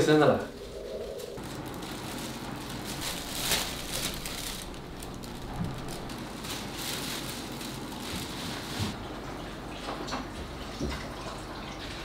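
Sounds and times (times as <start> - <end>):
plastic crinkling: 0.0 - 9.1.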